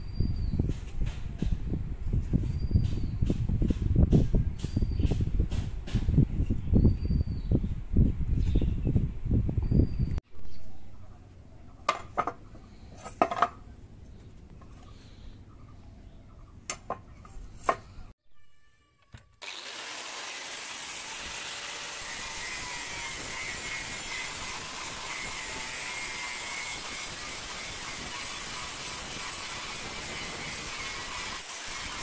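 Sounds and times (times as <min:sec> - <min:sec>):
angle grinder grinding steel: 0:19.4 - 0:32.0.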